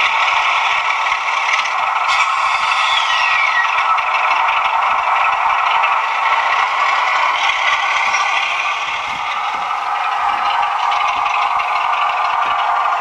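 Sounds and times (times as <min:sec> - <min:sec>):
model diesel engine sound from speaker: 0:00.0 - 0:13.0.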